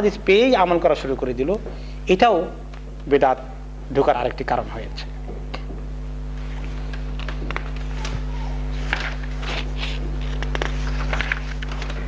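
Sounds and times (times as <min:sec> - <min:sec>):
low electrical hum: 0:00.0 - 0:12.0
paper rustling: 0:06.4 - 0:12.0.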